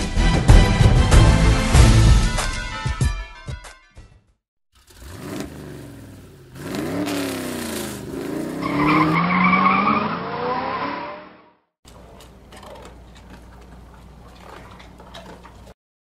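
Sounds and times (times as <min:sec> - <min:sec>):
engine revving: 0:04.8 - 0:11.6
tires squealing: 0:04.9 - 0:11.5.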